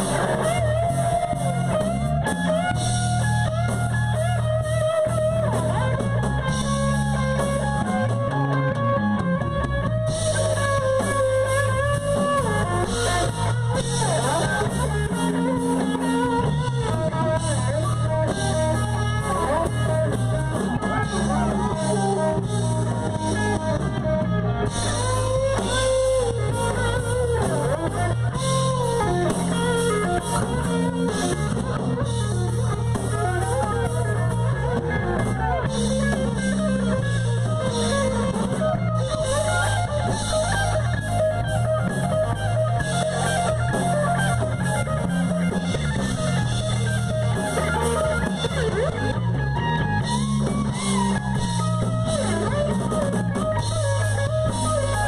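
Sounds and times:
drum kit: 0.0s - 55.0s
electric guitar: 0.0s - 55.0s.

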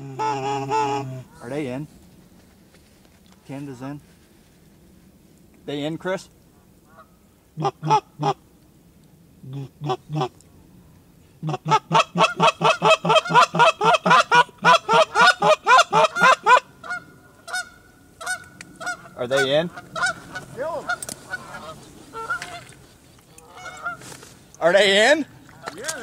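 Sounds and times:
goose honking: 0.0s - 1.5s, 6.9s - 8.4s, 11.4s - 24.1s.

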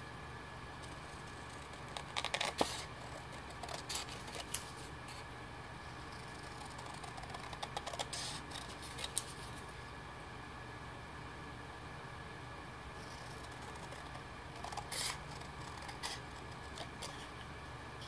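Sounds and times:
scissors snipping cardstock: 0.9s - 4.8s, 6.4s - 9.4s, 13.6s - 17.3s.

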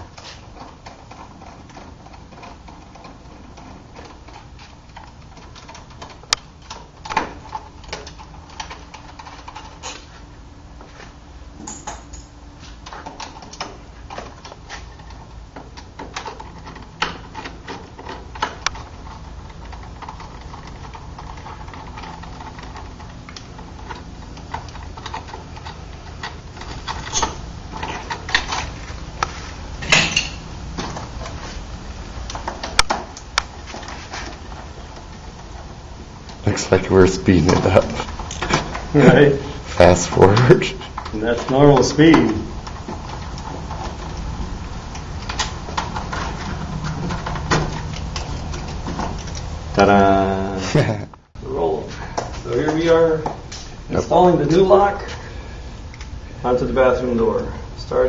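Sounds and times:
steady low hum: 0.0s - 58.0s
metal lock parts clicking and rattling: 11.6s - 28.8s.

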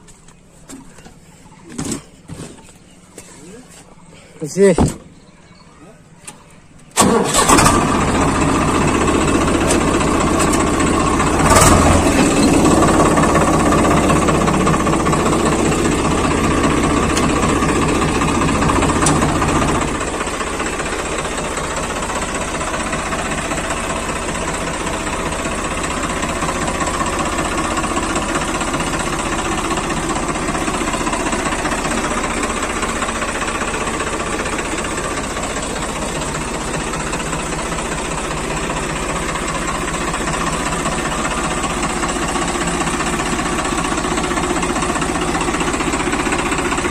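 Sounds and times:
tractor diesel engine running: 0.0s - 46.9s.

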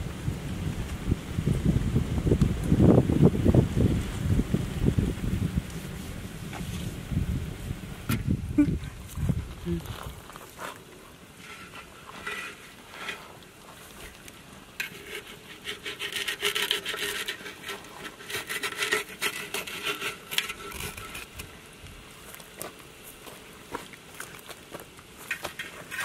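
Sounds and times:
wet cloth scraping metal pot: 10.6s - 21.6s, 25.2s - 26.0s.

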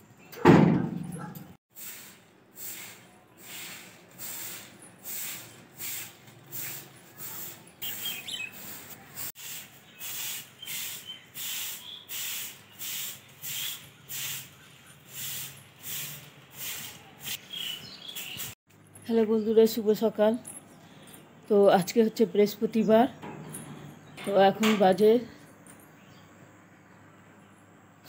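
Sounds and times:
broom sweeping dry leaves: 1.7s - 18.6s
birds chirping: 7.4s - 15.3s, 16.6s - 18.6s, 19.2s - 27.8s.

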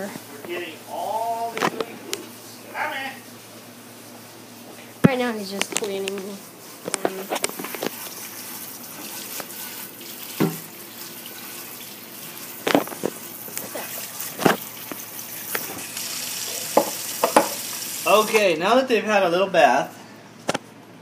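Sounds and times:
tap water splashing into sink: 8.8s - 11.9s, 12.5s - 18.4s
knocks against sink: 10.4s - 10.6s, 16.8s - 17.6s.

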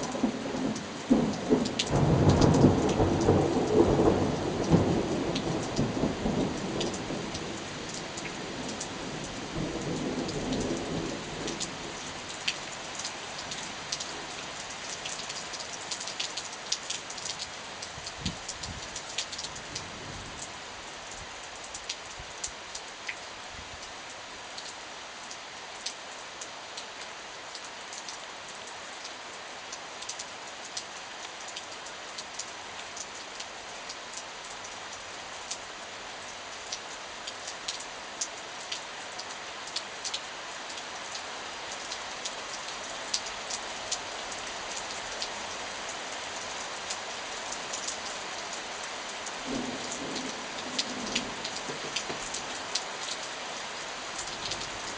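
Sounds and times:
heavy rain: 0.0s - 54.9s.

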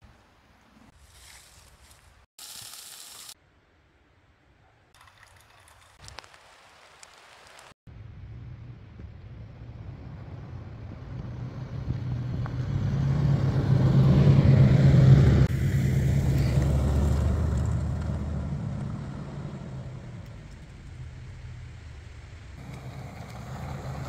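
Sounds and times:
car engine driving past: 8.1s - 21.8s, 22.6s - 24.0s.

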